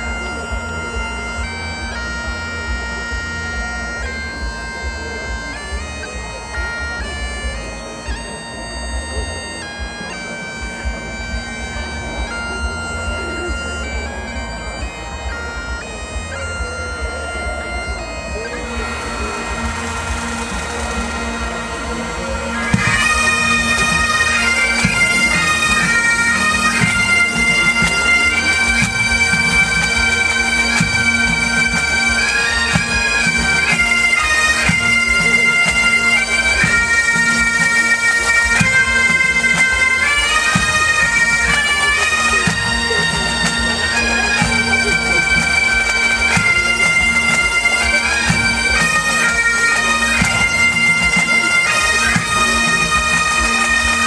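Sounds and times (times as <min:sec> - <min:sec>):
bagpipes melody with drone: 0:00.0 - 0:54.0
drums beating: 0:00.0 - 0:54.0.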